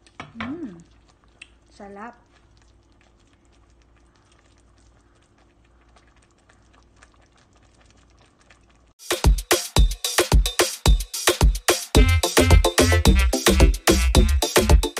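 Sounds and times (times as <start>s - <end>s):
pot simmering with bubbles: 0.0s - 12.7s
electronic dance music: 9.0s - 14.9s.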